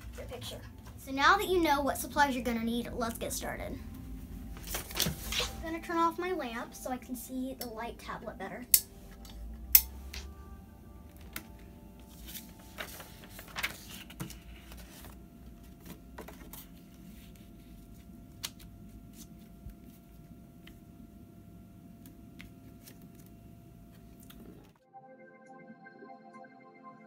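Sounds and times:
faint steady hum: 0:00.0 - 0:24.8
paper rustling and tapping: 0:12.2 - 0:16.8.

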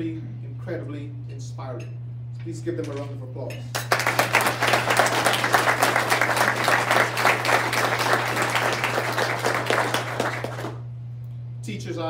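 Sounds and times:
audience applauding: 0:03.8 - 0:10.8.

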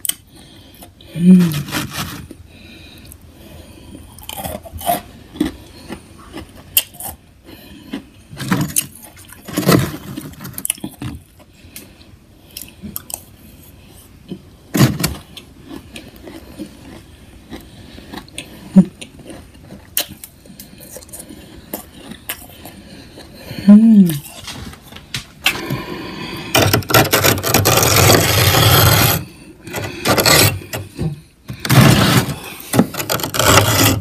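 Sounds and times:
metal spoon scraping frost: 0:01.4 - 0:02.3, 0:26.5 - 0:31.0, 0:31.6 - 0:34.0.

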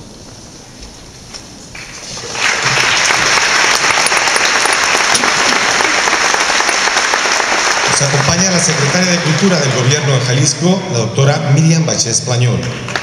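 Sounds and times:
audience applauding: 0:01.8 - 0:10.6, 0:12.5 - 0:13.0.

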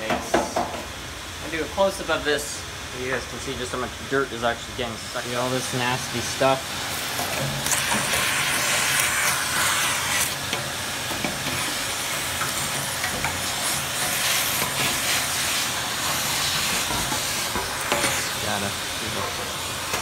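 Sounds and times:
vacuum cleaner running: 0:05.2 - 0:20.0.

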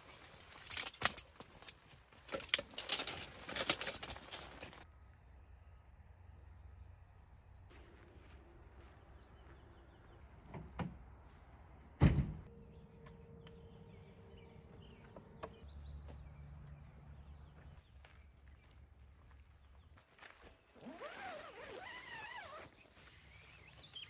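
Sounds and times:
truck door slamming: 0:12.0 - 0:12.5.

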